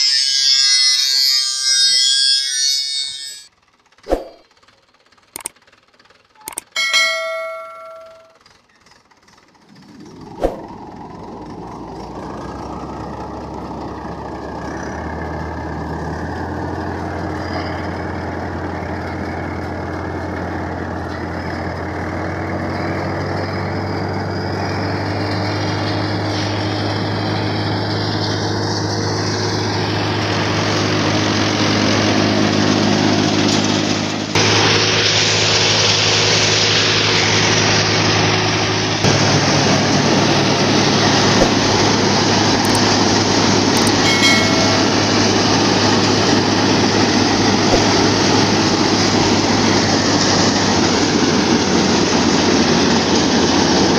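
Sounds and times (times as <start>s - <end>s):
tractor engine starting and running: 0.0s - 53.9s
thresher rushing: 3.0s - 4.5s, 9.7s - 13.2s, 34.4s - 53.9s.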